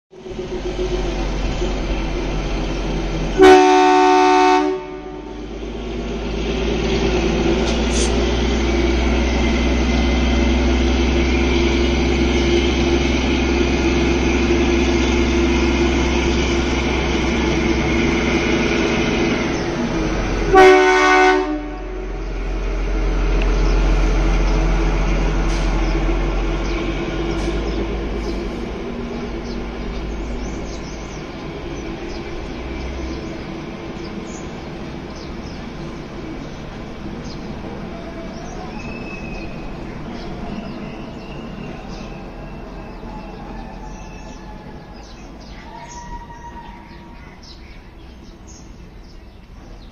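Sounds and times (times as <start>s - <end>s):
diesel locomotive engine running: 0.1s - 49.9s
locomotive horn blasts: 3.3s - 5.4s, 20.5s - 22.2s.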